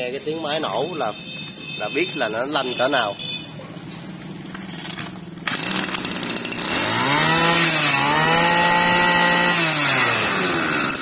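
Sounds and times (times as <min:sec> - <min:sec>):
brush cutter engine revving: 0:05.4 - 0:11.0.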